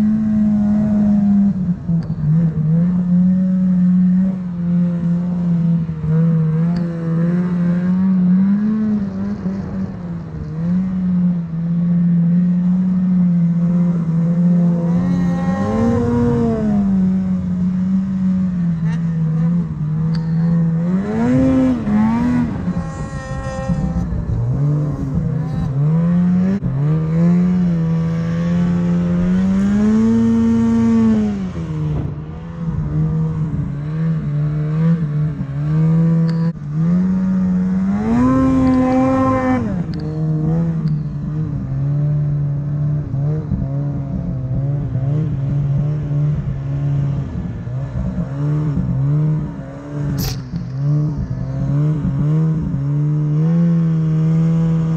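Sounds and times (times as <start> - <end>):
snowmobile engine revving: 0.0 - 54.9.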